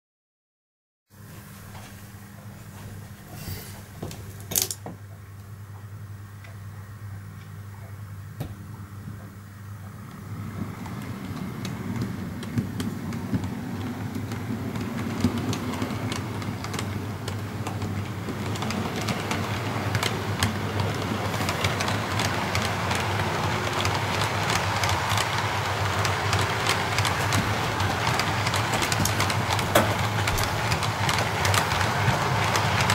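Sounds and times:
diesel locomotive engine drone: 0:05.0 - 0:32.9
wheel-over-rail clicks: 0:09.1 - 0:32.9.

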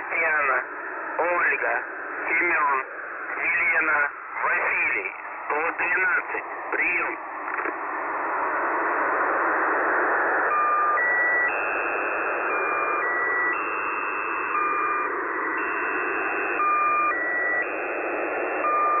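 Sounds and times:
radio static hiss: 0:00.0 - 0:19.0
repeating electronic tones: 0:10.5 - 0:19.0.

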